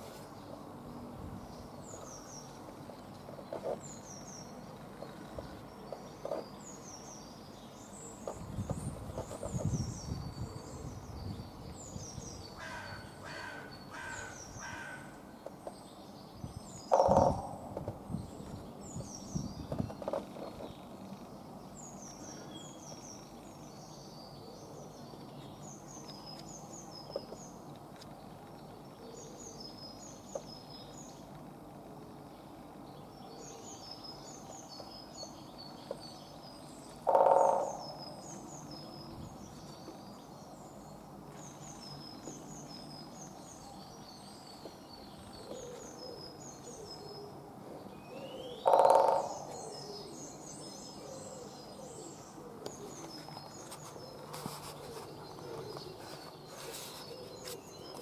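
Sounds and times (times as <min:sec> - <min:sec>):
birds chirping: 0:00.0 - 0:58.0
woodpecker drumming on a post: 0:16.9 - 0:17.5, 0:37.0 - 0:38.0, 0:48.6 - 0:49.4.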